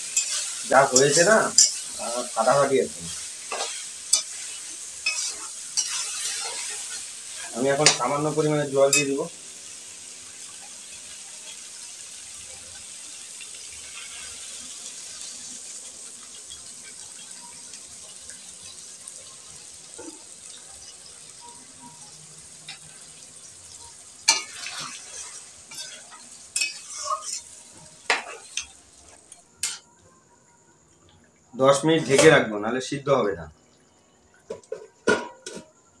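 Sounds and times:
metal spatula scraping a pan: 0.0s - 8.1s, 13.8s - 14.6s, 24.2s - 28.8s, 29.6s - 29.9s
curry sizzling in a pan: 0.0s - 30.1s.

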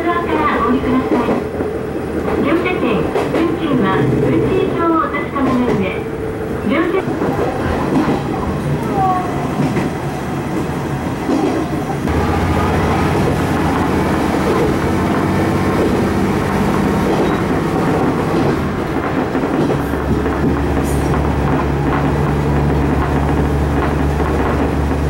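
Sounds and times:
diesel railcar engine drone: 0.0s - 25.0s
wheels clicking over rail joints: 13.2s - 25.0s.

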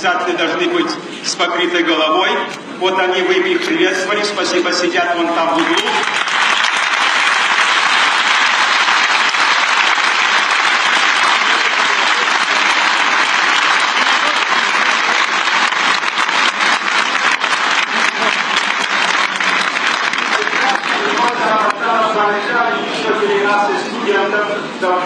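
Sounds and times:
crowd applauding: 5.5s - 22.4s.

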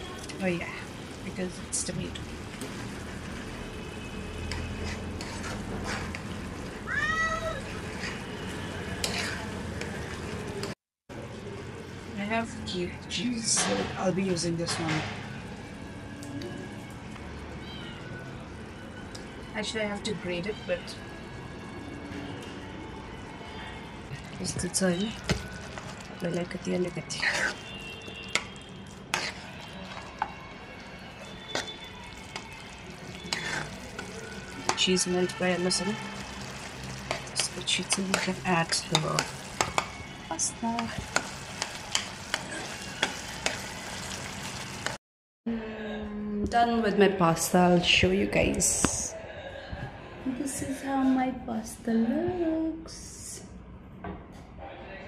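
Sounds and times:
spatula scraping a frying pan: 4.4s - 6.4s, 7.7s - 9.6s, 27.1s - 30.2s, 31.3s - 34.9s, 36.2s - 39.9s
spoon stirring thick sauce: 4.4s - 6.4s, 7.7s - 10.7s, 24.1s - 30.4s, 31.2s - 40.0s, 40.7s - 44.9s.

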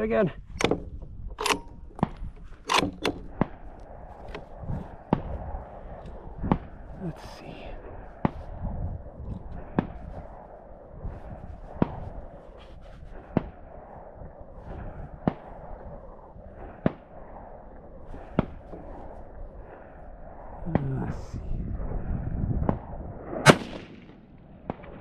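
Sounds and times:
steady low rumble: 0.0s - 25.0s
sharp gunshots: 23.4s - 25.0s.

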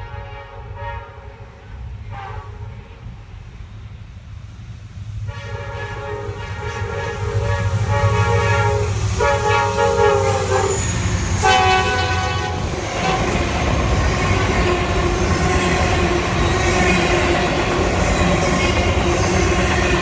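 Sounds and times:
locomotive air horn blasts: 0.0s - 3.1s, 5.3s - 13.5s
locomotive engine rumbling: 6.2s - 20.0s.

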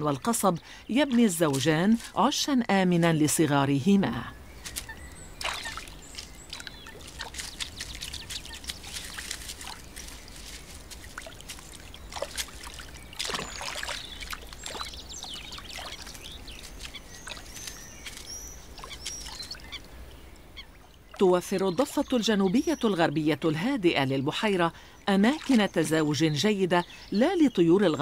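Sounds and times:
water splashing and dripping: 0.0s - 2.4s, 4.6s - 23.7s, 25.0s - 26.5s
wet plant stems clicking: 1.1s - 2.4s, 4.6s - 19.7s
high chirping bird calls: 2.9s - 28.0s.

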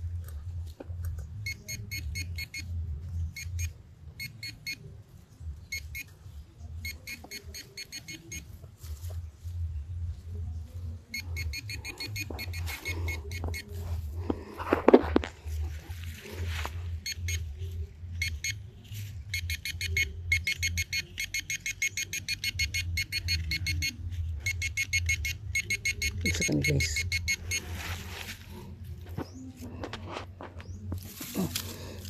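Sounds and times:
metal detector beeps: 1.4s - 4.9s, 5.7s - 6.1s, 6.8s - 8.5s, 11.1s - 13.8s, 17.0s - 17.5s, 18.2s - 18.6s, 19.2s - 28.1s.

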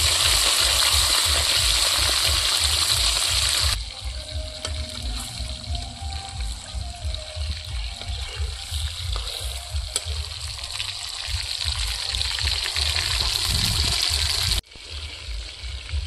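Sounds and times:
fish sizzling in hot oil: 0.0s - 16.0s.

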